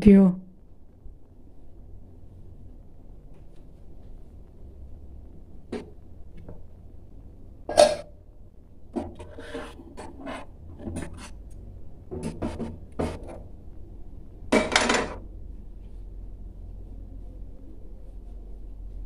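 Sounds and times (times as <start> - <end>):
plates scraping on glass stove: 9.0 - 11.4.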